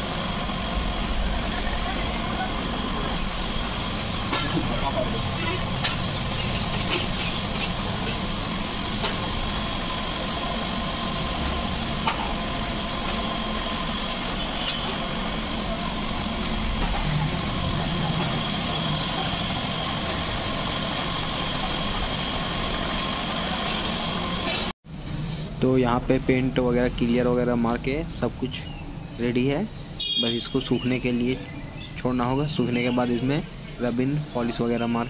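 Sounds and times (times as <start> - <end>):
spray gun hissing: 0.0 - 2.4, 3.0 - 14.4, 15.1 - 24.4
air compressor humming: 0.0 - 24.7.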